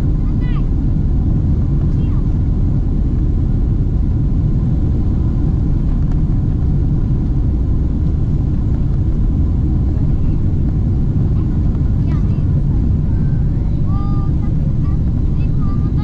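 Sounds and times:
jet airliner cabin rumble: 0.0s - 16.0s.

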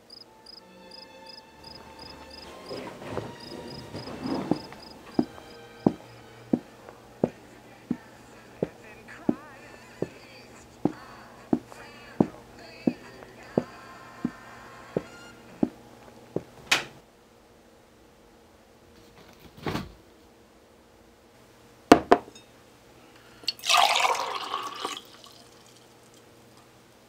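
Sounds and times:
milk pouring into glass: 23.4s - 26.2s.

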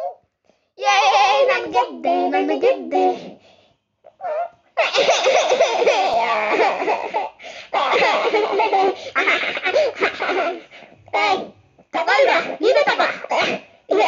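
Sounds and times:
cartoon character wordless vocalising: 0.8s - 3.4s, 11.1s - 14.0s.

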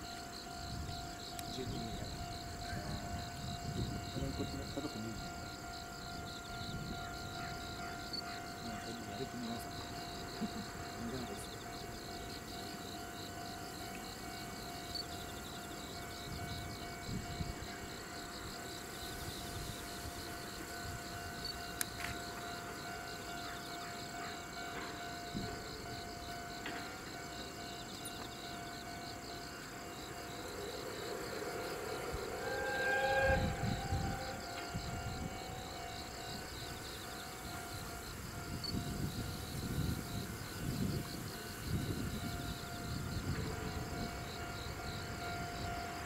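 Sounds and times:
insects chirping: 0.0s - 46.0s
wind rumbling on microphone: 0.6s - 5.4s, 16.1s - 17.8s, 33.2s - 45.9s.

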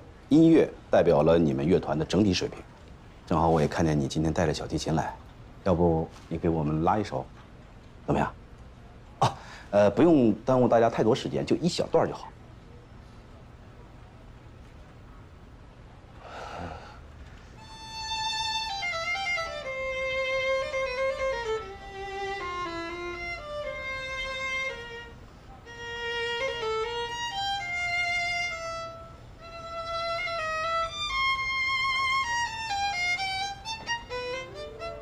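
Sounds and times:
solo violin melody: 17.6s - 35.0s.

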